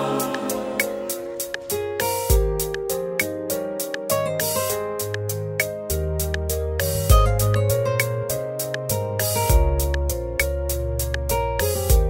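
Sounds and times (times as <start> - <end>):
keyboard chords: 0.0 - 12.0
bass line: 6.0 - 8.2, 8.9 - 12.0.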